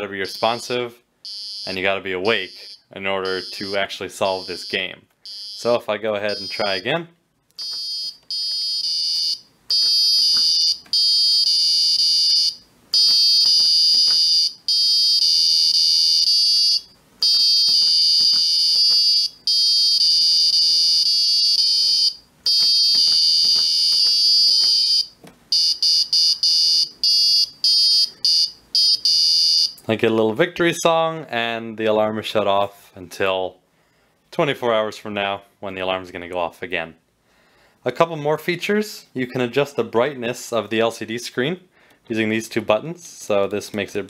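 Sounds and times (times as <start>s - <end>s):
electronic buzzer long beeps: 1.3s - 3.8s, 4.4s - 5.7s, 6.3s - 6.8s, 7.6s - 29.8s.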